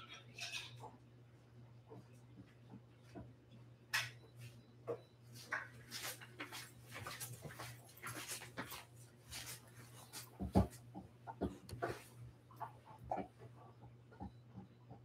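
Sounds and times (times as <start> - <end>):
footsteps: 5.4 - 10.8.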